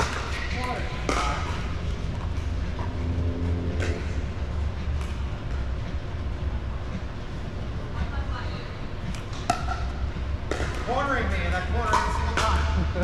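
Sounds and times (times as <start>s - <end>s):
low rumble of sports hall: 0.0s - 13.0s.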